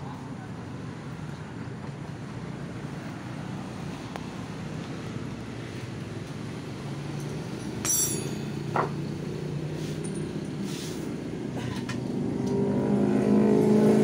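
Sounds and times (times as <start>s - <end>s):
low engine-like hum: 0.0s - 14.0s
steel tools clinking: 7.2s - 8.6s.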